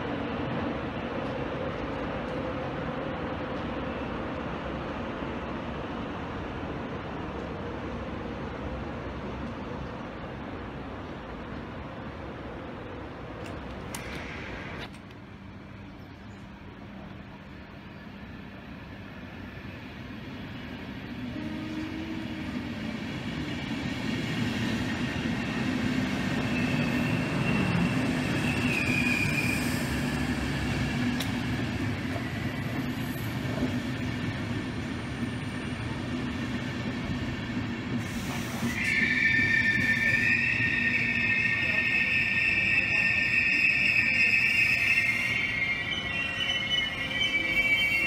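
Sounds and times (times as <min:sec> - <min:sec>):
train coaches rumbling: 0:00.0 - 0:48.0
train brakes squealing: 0:24.5 - 0:34.4, 0:37.9 - 0:48.0.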